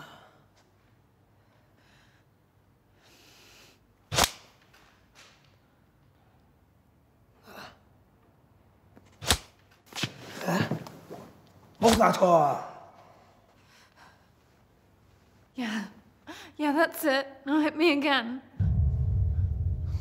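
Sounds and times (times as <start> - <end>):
sharp smacks of blows: 4.1 - 4.5, 9.2 - 10.2.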